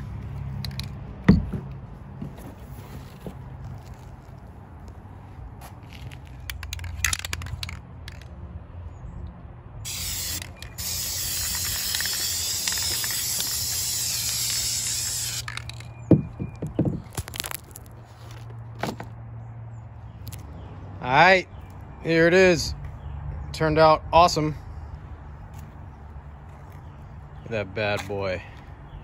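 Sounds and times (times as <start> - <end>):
aerosol spray can hissing: 9.9 - 15.6
sharp knocks: 16.0 - 17.2.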